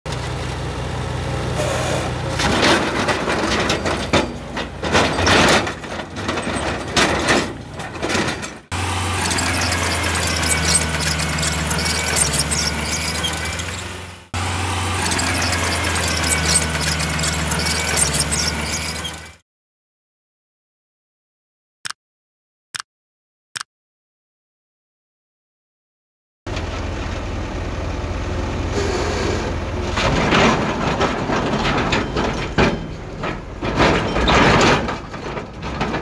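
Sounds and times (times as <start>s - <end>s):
heavy machinery diesel engines: 0.1s - 19.4s, 26.5s - 36.0s
scraping and squealing: 1.6s - 19.4s, 28.7s - 36.0s.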